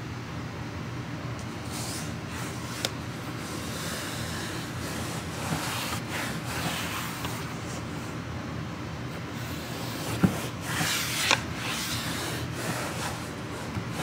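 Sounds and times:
hands rubbing foam mat: 1.7s - 8.0s, 9.4s - 14.0s.

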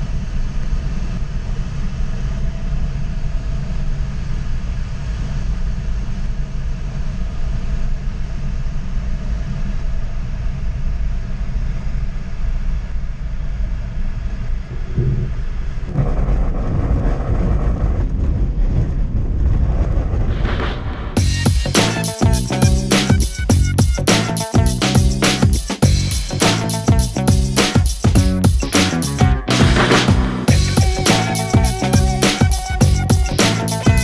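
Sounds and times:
cockpit rumble and rushing: 14.5s - 22.9s
music: 21.2s - 34.0s.

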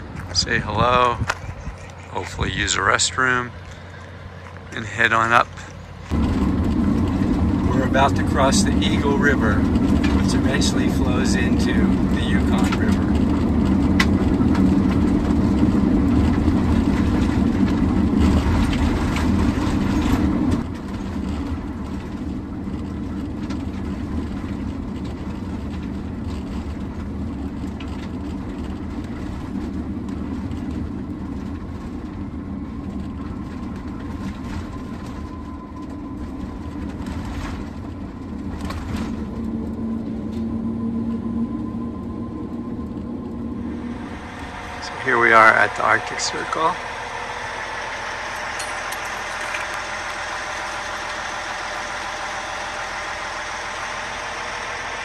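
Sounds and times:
tyres humming on steel grate: 0.0s - 21.1s, 33.2s - 55.0s
van tyre and engine rumble: 0.0s - 55.0s.

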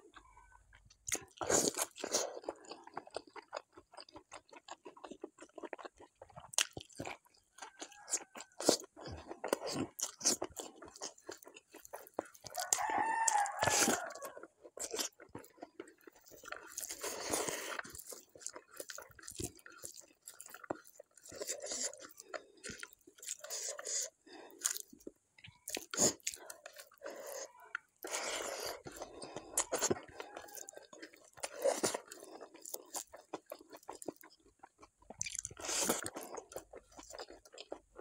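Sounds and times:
chewing and wet mouth smacks: 0.1s - 38.0s
rooster crowing: 12.4s - 14.5s, 29.8s - 31.1s.

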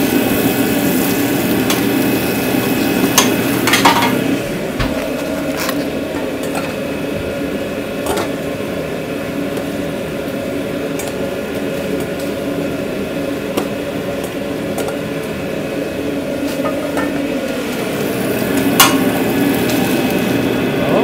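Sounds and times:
kitchen equipment humming: 0.0s - 21.0s.

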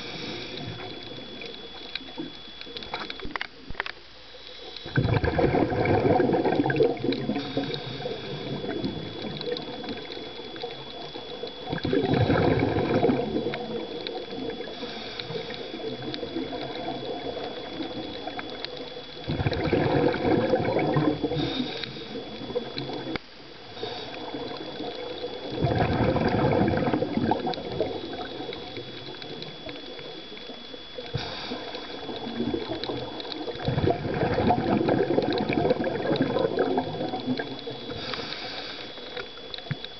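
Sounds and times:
diver breathing: 0.0s - 1.1s, 7.2s - 9.2s, 14.5s - 16.2s, 21.1s - 22.5s, 23.6s - 24.8s, 31.0s - 32.3s, 37.8s - 39.3s
underwater breath bubbles: 0.0s - 3.3s, 4.4s - 39.9s.

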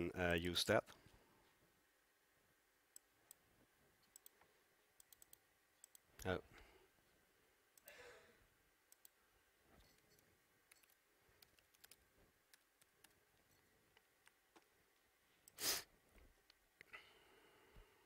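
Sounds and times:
keyboard and mouse clicks: 4.0s - 6.4s, 8.9s - 9.2s, 9.8s - 14.7s.

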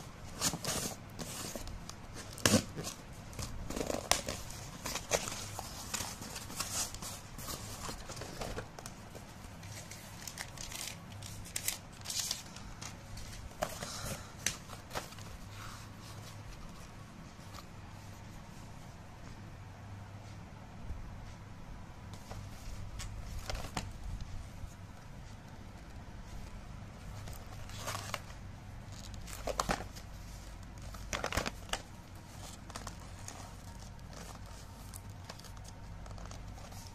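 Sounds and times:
cardboard and paper rustling: 0.0s - 18.4s, 22.2s - 24.8s, 26.2s - 36.9s
faint low hum: 0.0s - 36.9s
cardboard box rustling and scraping: 0.3s - 10.0s.

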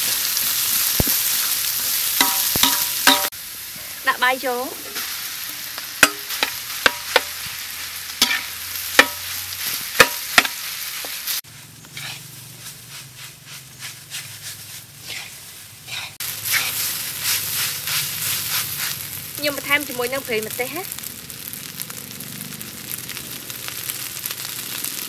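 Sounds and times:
frying sizzle: 0.0s - 25.0s
metal spatula scraping wok: 1.1s - 4.0s, 4.7s - 19.2s.

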